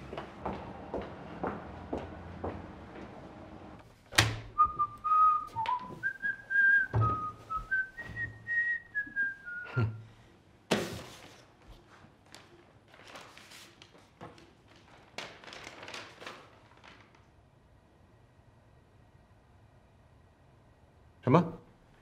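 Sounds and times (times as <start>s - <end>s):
man whistling a tune: 4.6s - 10.0s.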